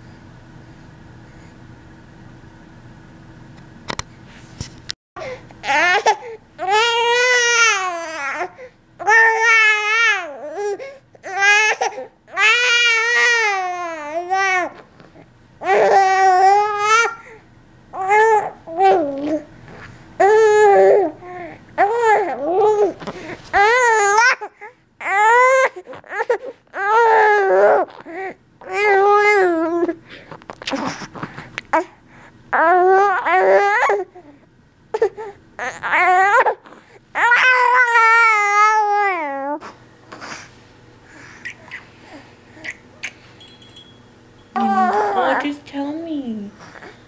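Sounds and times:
baby crying: 5.6 - 14.8, 15.6 - 17.2, 18.0 - 19.4, 20.2 - 23.0, 23.6 - 29.9, 32.6 - 34.1, 35.0 - 40.5, 44.6 - 45.5.

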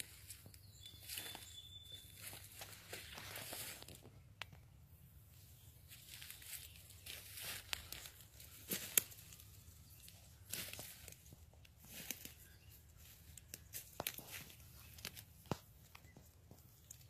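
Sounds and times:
footsteps on dry leaves: 0.0 - 4.2, 5.4 - 15.7.

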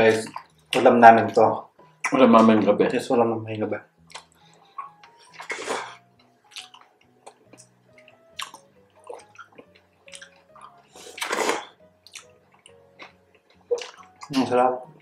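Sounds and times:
quiet background music: 0.0 - 15.0
wet bites and slurps: 11.0 - 12.3.

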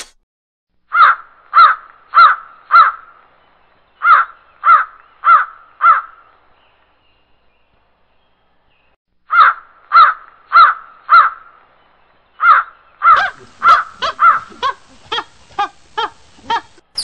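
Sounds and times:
crow cawing: 0.9 - 3.0, 4.0 - 6.2, 9.3 - 11.5, 12.4 - 16.7.

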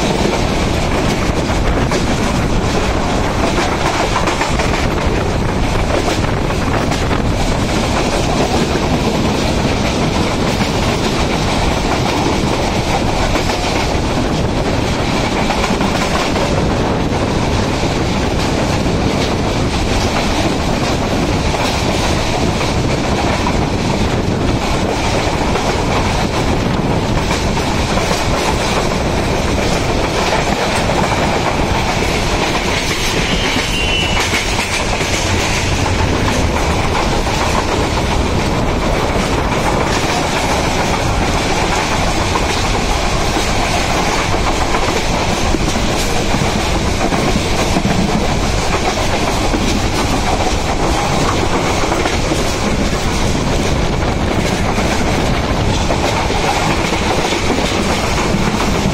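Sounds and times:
train rumble: 0.0 - 58.9
faint high squeal: 33.2 - 34.3.

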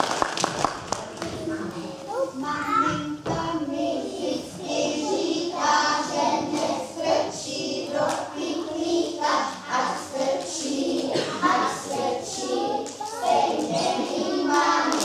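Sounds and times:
hand claps: 0.0 - 1.4
children singing: 2.8 - 15.0.

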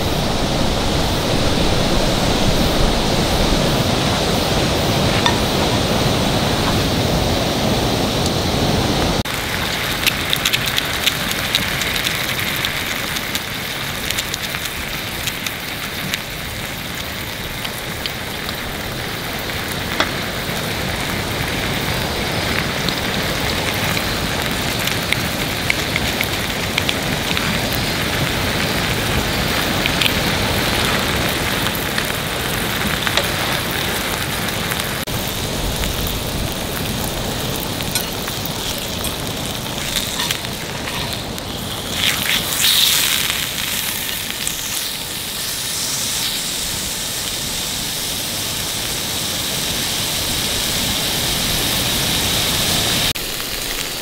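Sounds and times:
low even rushing noise: 0.0 - 9.2
steak sizzling in oil: 0.1 - 7.5, 9.2 - 54.0.

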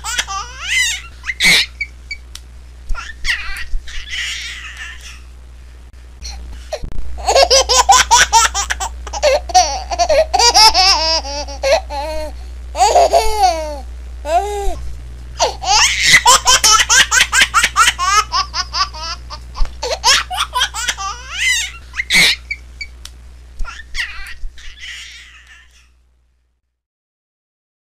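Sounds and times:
baby laughing: 0.0 - 1.9, 2.9 - 5.3, 7.2 - 14.8, 15.4 - 22.6, 23.6 - 25.9.

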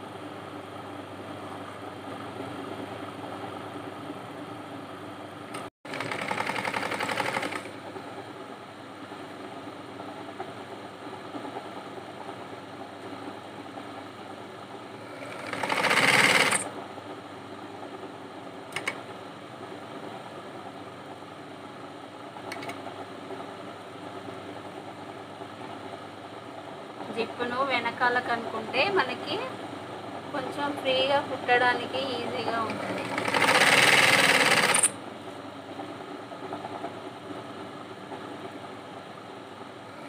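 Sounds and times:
sewing machine stitching: 5.9 - 7.7, 15.1 - 16.7, 32.6 - 35.0.

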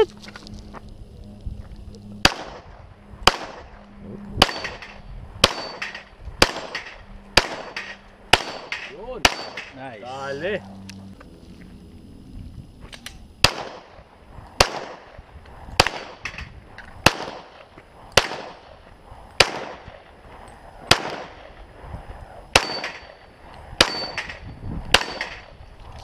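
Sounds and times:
pistol shots echoing: 2.2 - 3.7, 4.4 - 9.7, 13.4 - 13.9, 14.6 - 15.1, 17.0 - 17.6, 18.2 - 18.7, 19.4 - 20.0, 20.9 - 21.5, 22.6 - 23.2, 23.8 - 25.5.

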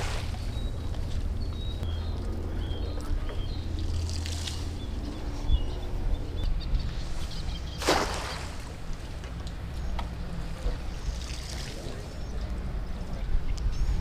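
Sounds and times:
small birds chirping: 0.0 - 14.0
net splashing on water: 7.8 - 8.8.

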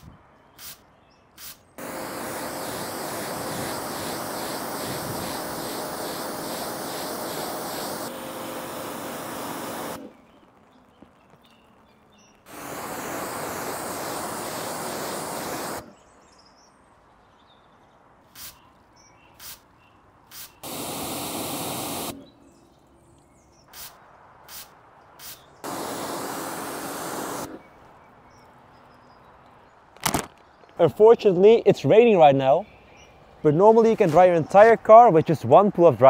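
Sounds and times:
pressure washer spraying water: 1.4 - 10.2, 12.5 - 15.9, 20.3 - 22.3, 23.8 - 27.6
trigger sprayer squirts: 1.4 - 10.2, 12.5 - 15.9, 20.3 - 22.2.

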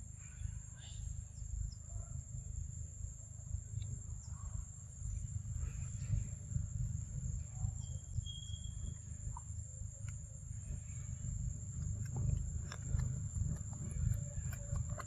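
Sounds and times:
insects buzzing: 0.0 - 15.0
pulsing insect chirp: 0.0 - 15.0
low rumble: 3.1 - 15.0.

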